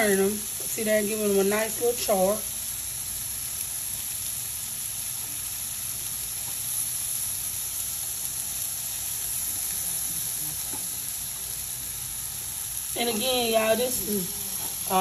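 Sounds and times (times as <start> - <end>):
ribs sizzling on grill: 0.0 - 15.0.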